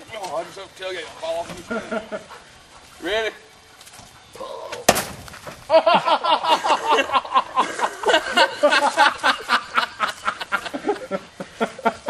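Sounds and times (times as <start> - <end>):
men laughing: 1.5 - 2.7, 5.7 - 12.0.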